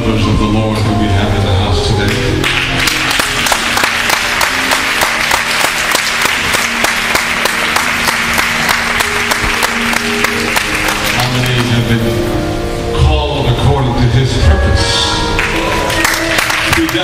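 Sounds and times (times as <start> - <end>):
music holding low notes: 0.0 - 17.0
congregation applauding: 2.0 - 12.1, 15.1 - 17.0.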